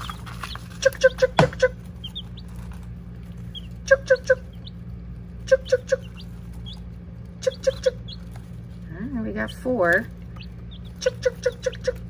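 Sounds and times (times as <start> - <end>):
chick peeps: 0.0 - 8.6, 9.4 - 12.0
person clucking: 11.0 - 12.0.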